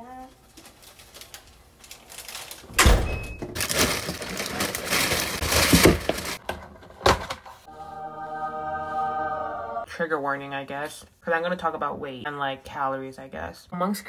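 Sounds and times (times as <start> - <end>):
plastic bag rustling: 0.4 - 2.8, 3.4 - 6.4.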